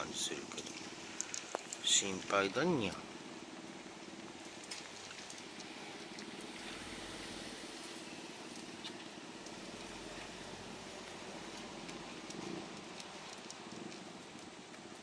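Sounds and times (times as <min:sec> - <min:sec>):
cat crunching dry food: 0:04.1 - 0:15.0.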